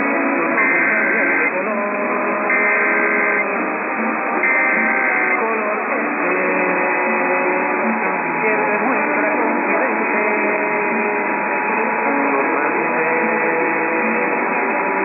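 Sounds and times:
muffled background music: 0.0 - 15.0
muffled voices: 0.0 - 15.0
digital data tone bursts: 0.5 - 7.6.

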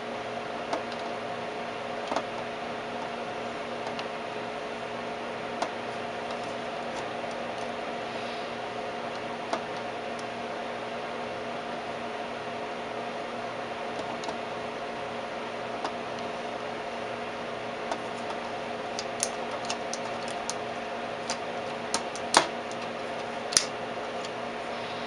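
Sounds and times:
oscilloscope hum: 0.0 - 12.4, 13.0 - 25.0
sharp clicks of knobs and switches: 0.6 - 1.2, 2.0 - 3.2, 3.8 - 4.2, 5.5 - 7.8, 9.1 - 10.4, 13.9 - 14.4, 15.8 - 16.4, 17.8 - 24.4.

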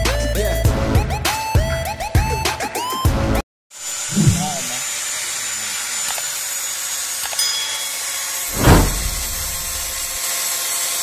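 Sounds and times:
loud bump: 8.5 - 10.2.

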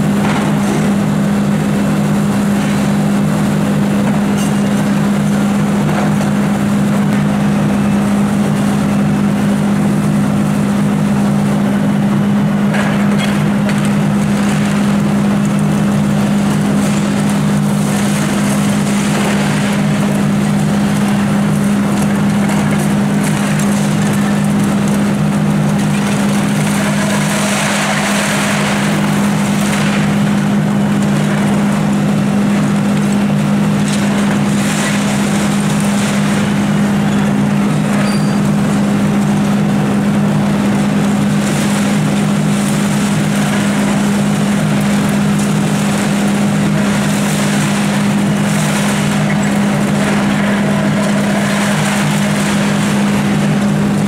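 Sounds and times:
excavator diesel engine running: 0.0 - 54.0
rubble crashing down: 12.7 - 39.6, 40.4 - 54.0.

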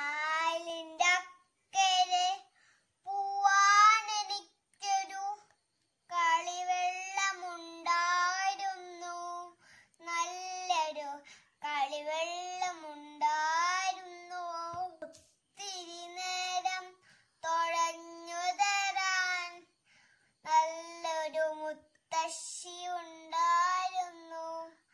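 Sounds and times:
child singing: 0.0 - 19.8, 20.4 - 24.9.

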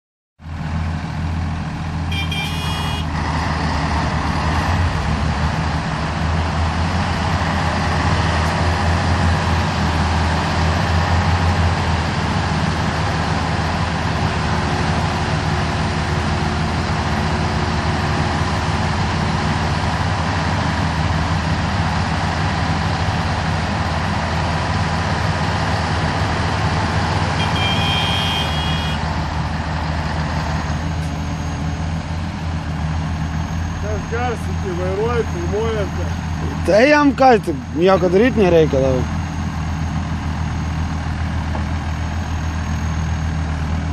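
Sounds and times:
heavy diesel engines droning: 0.4 - 43.9
short high-pitched tone: 2.1 - 3.1, 27.4 - 29.0.

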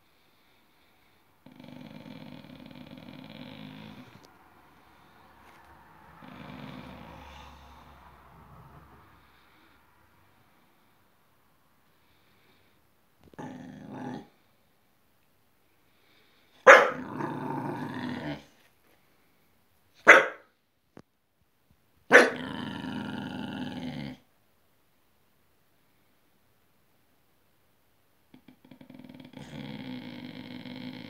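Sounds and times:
dog growling: 1.4 - 4.3, 6.0 - 9.4, 13.2 - 14.4, 16.7 - 18.6, 22.1 - 24.3, 28.3 - 31.0
dog barking sharply: 16.7 - 17.0, 20.0 - 20.5, 22.1 - 22.4.

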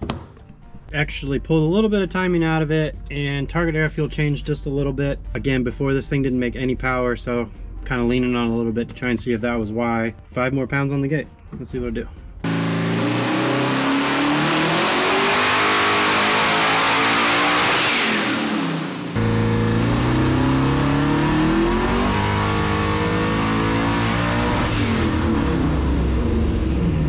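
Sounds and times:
car engine revving under load: 12.4 - 27.0.

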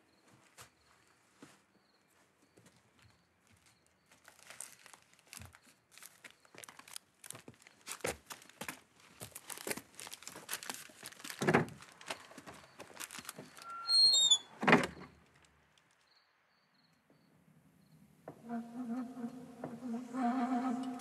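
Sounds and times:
paper crinkling and rustling: 3.6 - 16.1
door hinge squeaking: 13.3 - 15.2.

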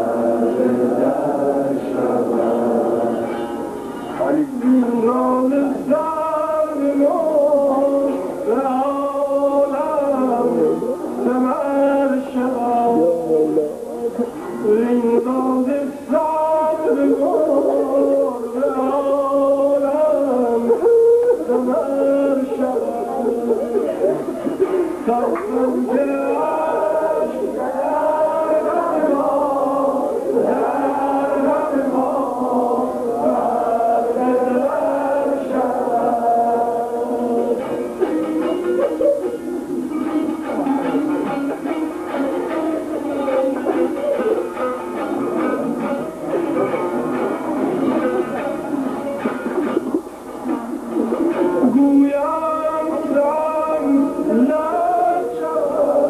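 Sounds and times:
man singing devotional chant: 0.0 - 3.6, 4.2 - 13.8, 14.6 - 24.0, 24.6 - 37.9, 51.6 - 56.0
lute accompaniment: 0.0 - 56.0.

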